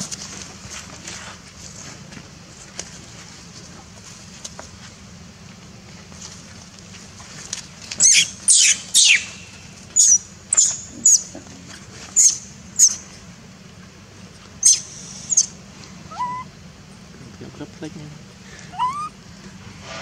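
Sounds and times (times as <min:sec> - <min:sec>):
monkey shrill squeals: 0:08.0 - 0:09.4, 0:10.0 - 0:11.3, 0:12.2 - 0:13.0, 0:14.6 - 0:15.5, 0:16.1 - 0:16.5, 0:18.7 - 0:19.2.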